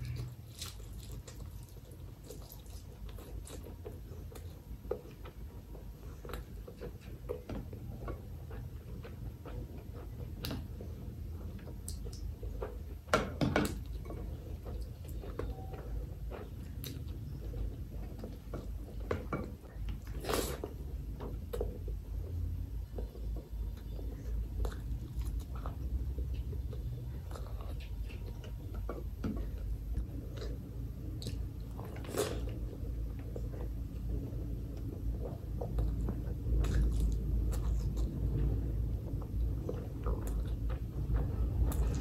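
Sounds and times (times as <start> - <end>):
wet chewing and smacking: 0.0 - 42.0.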